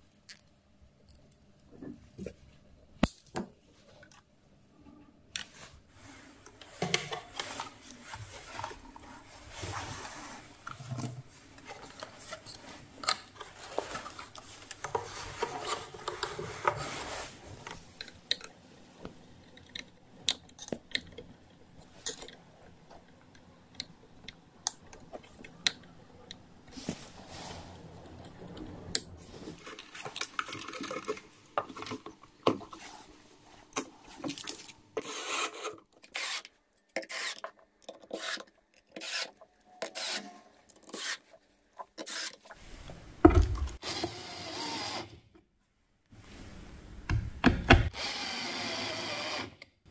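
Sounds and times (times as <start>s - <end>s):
wires and parts scraping: 5.4s - 18.5s, 26.6s - 43.0s.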